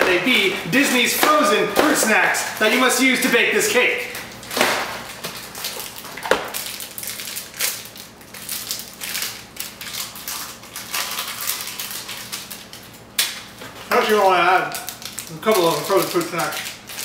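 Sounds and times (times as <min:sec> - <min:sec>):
plastic pouch crinkling: 0:03.8 - 0:17.0.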